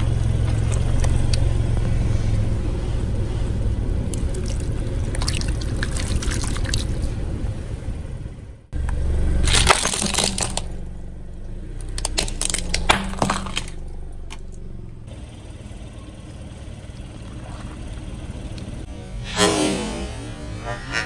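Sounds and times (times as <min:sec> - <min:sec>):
car engine hum: 0:00.0 - 0:21.0
plastic toy crushed by tyre: 0:09.4 - 0:10.8, 0:11.8 - 0:14.5.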